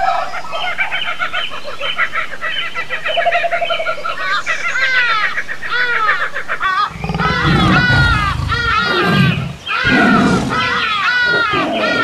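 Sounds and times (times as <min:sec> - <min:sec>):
chattering and squawking animal calls: 0:02.0 - 0:12.0
rapid cackle: 0:05.7 - 0:12.0
falling whistling calls: 0:06.8 - 0:12.0.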